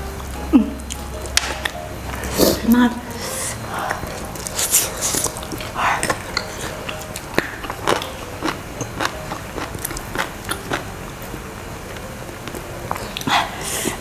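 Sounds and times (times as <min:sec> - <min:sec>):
chewing: 0:00.2 - 0:14.0.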